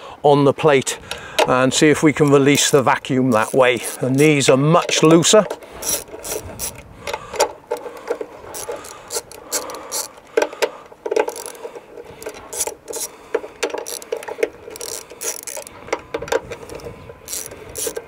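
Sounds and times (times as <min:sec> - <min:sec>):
ratchet wrench clicking: 0:02.5 - 0:18.0.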